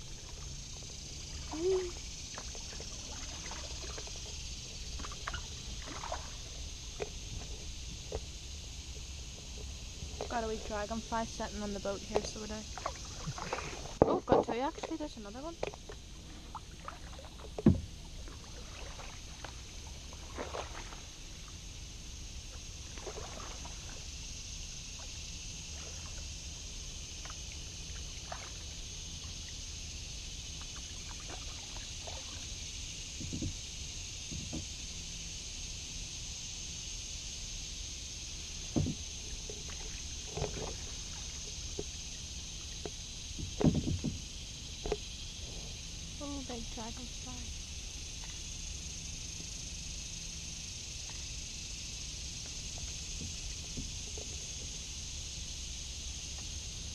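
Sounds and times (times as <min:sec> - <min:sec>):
paddle strokes in water: 0:00.0 - 0:35.0, 0:37.9 - 0:46.1, 0:50.6 - 0:56.9
steady high hiss: 0:00.0 - 0:56.9
paddle knocking plastic hull: 0:17.4 - 0:18.4, 0:33.1 - 0:33.6, 0:34.2 - 0:34.8, 0:38.7 - 0:41.0, 0:42.7 - 0:45.0.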